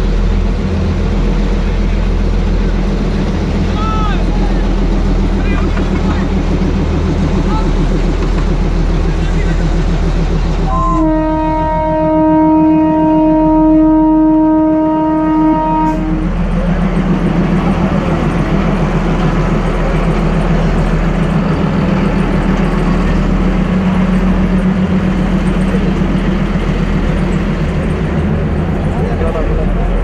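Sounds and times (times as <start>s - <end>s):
diesel engine fluttering: 0.0s - 12.5s, 15.0s - 30.0s
locomotive horn: 10.6s - 16.4s.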